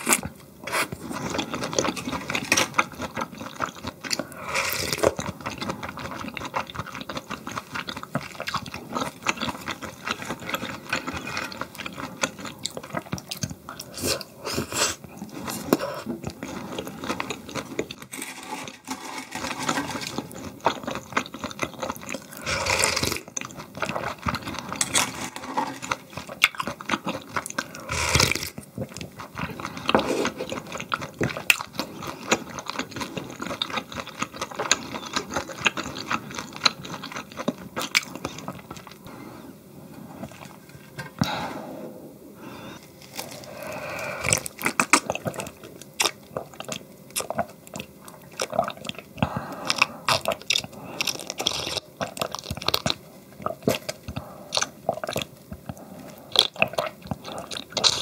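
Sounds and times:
chewing and mouth clicks: 1.2 - 14.0, 44.3 - 58.0
slurping: 21.9 - 26.4, 27.2 - 28.6.

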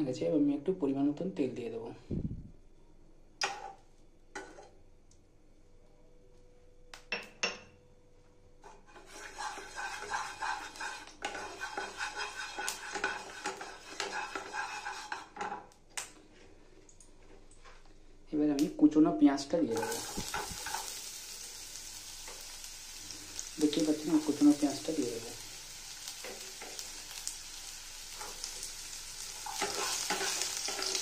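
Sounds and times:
spatula stirring hot oil: 8.6 - 15.8, 19.7 - 31.0.

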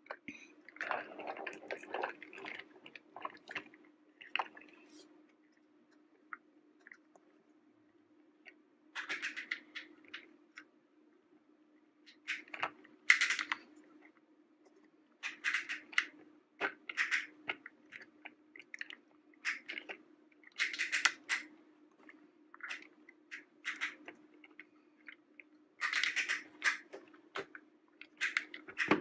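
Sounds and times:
plastic toy parts clicking and clattering: 9.0 - 10.3, 12.1 - 13.7, 15.2 - 21.5, 22.6 - 24.6, 25.8 - 29.0.

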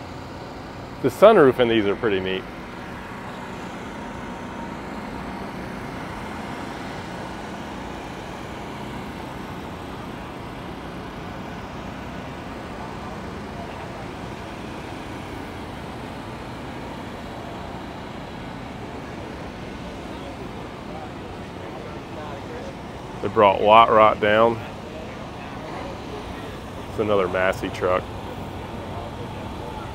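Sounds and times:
low rumble of vehicle engines: 0.0 - 29.9
outdoor background noise: 0.0 - 29.9.

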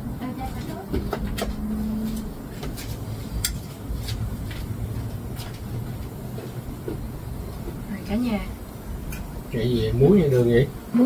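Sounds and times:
low rumble: 0.0 - 9.5
short low hum: 1.0 - 9.5.

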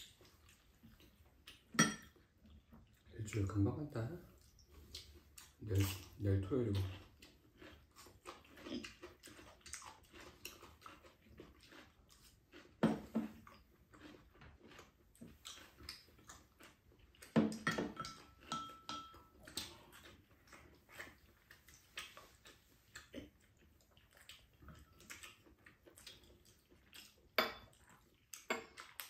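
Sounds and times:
people chewing: 0.0 - 29.0
chopsticks clinking on ceramic bowls: 1.8 - 2.2, 17.6 - 19.4.

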